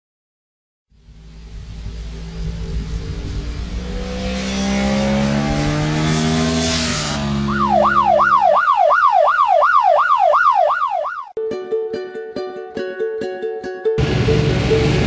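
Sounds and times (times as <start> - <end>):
motorcycle passing by: 0.9 - 8.6
yelping siren: 7.3 - 11.4.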